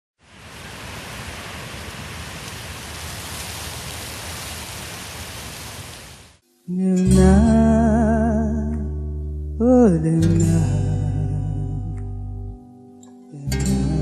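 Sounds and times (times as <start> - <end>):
music: 6.5 - 14.0.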